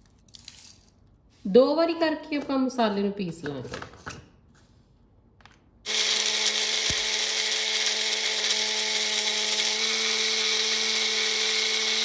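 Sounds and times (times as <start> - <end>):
mixer grinder motor humming: 5.9 - 12.0.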